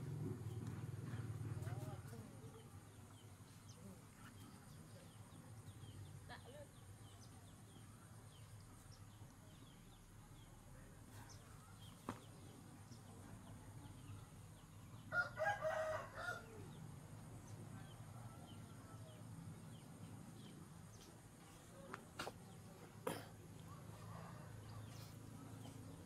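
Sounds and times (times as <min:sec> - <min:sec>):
rooster crowing: 0:15.1 - 0:16.8.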